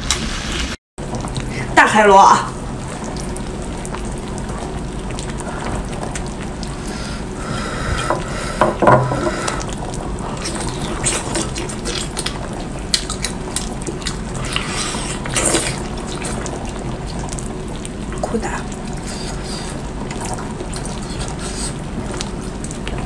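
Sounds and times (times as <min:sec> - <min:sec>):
louder knocks: 0:08.6 - 0:09.3.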